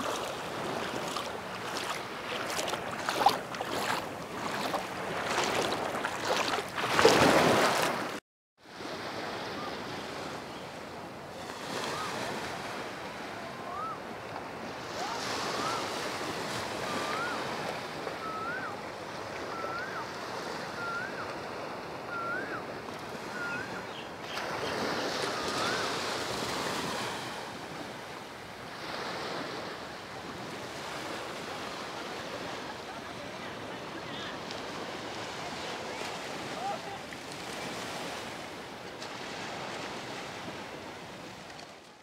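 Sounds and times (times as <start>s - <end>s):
surf washing onto beach: 0.0s - 10.4s.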